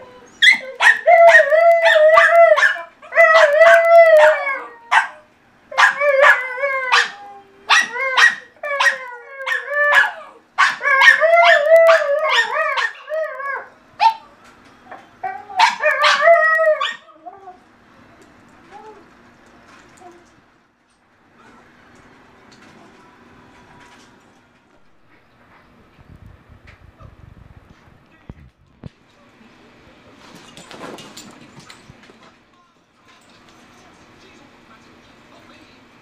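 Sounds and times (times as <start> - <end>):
dog howling: 0.0 - 14.3, 15.2 - 17.6
dog yipping: 0.2 - 5.2, 5.8 - 14.3, 15.3 - 17.1.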